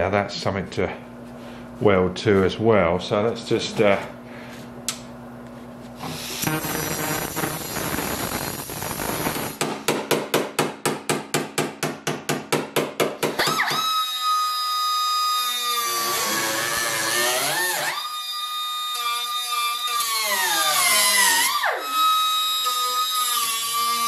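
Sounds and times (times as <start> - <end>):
angle grinder cutting sheet steel: 6.0 - 9.6, 15.4 - 18.3, 19.2 - 24.0.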